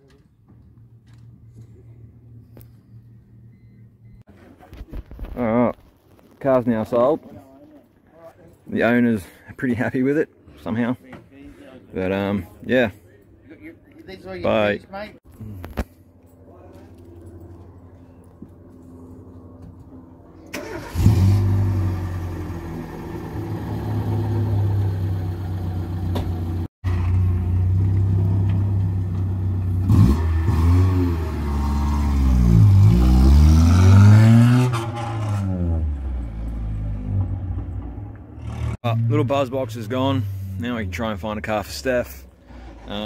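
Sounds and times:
car engine revving: 29.7 - 41.2.

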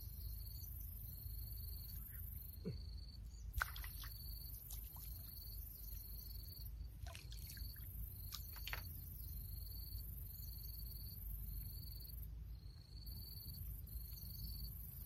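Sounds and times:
insect drone: 0.0 - 15.0
water plops and drips: 3.6 - 6.3, 7.0 - 9.0.

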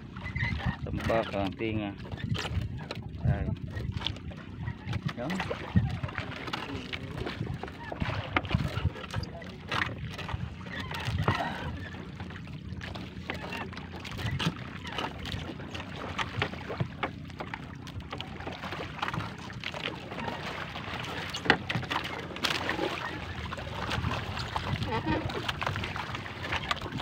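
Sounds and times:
water sloshing: 0.0 - 27.0
wind and sea rushing: 0.0 - 27.0.

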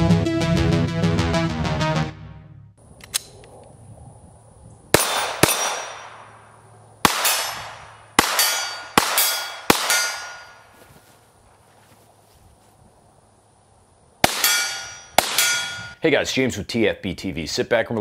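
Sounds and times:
pistol shots: 4.9 - 10.6, 14.2 - 16.0
steel targets ringing: 5.0 - 6.5, 7.1 - 10.7, 14.2 - 16.0.

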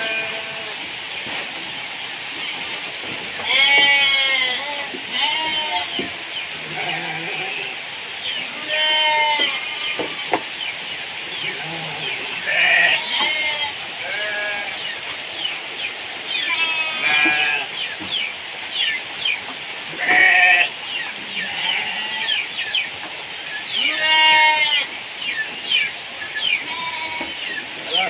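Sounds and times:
animals bleating: 0.0 - 0.9, 3.3 - 10.4, 11.3 - 15.0, 16.3 - 18.0, 19.9 - 22.5, 23.7 - 25.0, 26.5 - 28.0.

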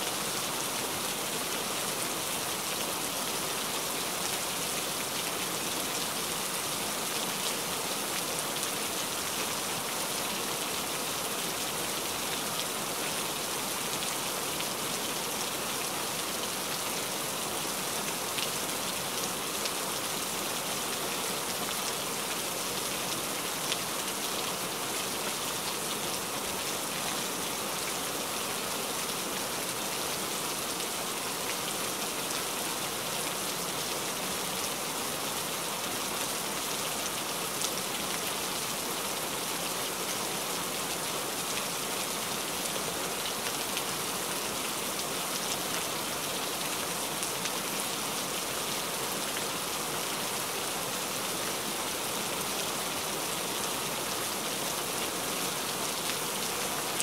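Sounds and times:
rain falling: 0.0 - 57.0.

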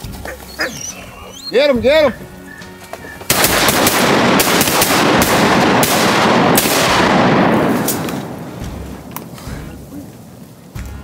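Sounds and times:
shotgun shots echoing: 3.2 - 10.4.

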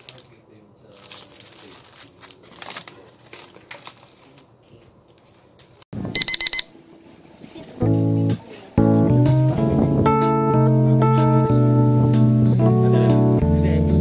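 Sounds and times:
high-pitched electronic beeps: 6.2 - 6.8.

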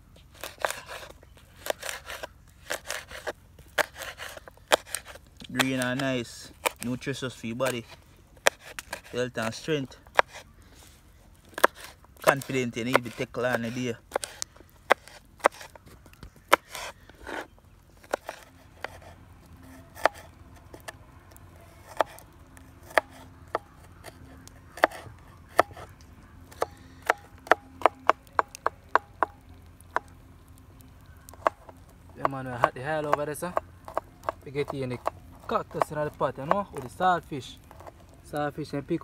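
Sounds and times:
knife chopping on cutting board: 11.6 - 15.7, 20.0 - 20.9, 21.9 - 23.8, 24.7 - 25.9, 26.5 - 29.4.

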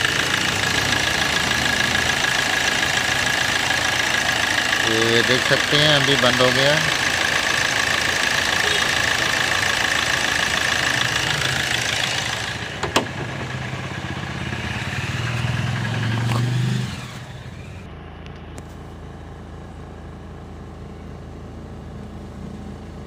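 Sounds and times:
diesel engine idling: 0.0 - 23.0.

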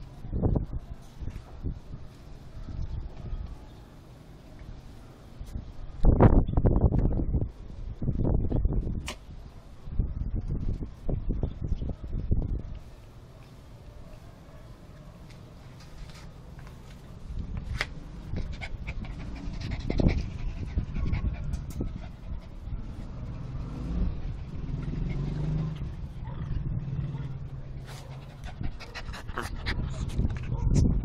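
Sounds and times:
dogs panting: 18.3 - 22.8, 27.8 - 31.0.

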